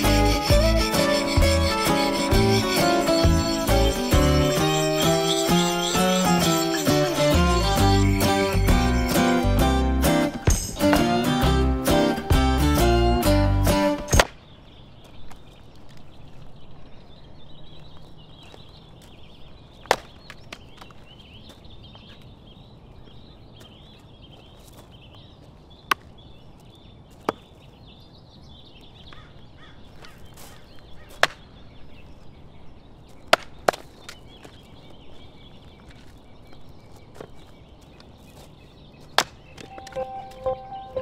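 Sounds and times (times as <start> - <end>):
axe splitting firewood: 14.0 - 14.3.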